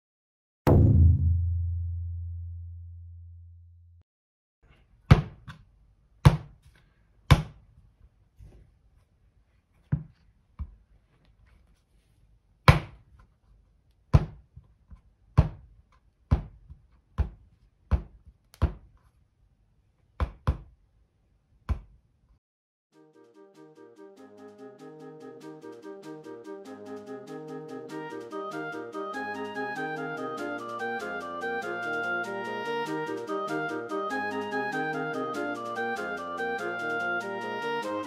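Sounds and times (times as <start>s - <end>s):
clay thumped on a board: 12.7s - 13.0s, 14.1s - 14.4s, 15.4s - 15.7s, 16.3s - 18.9s.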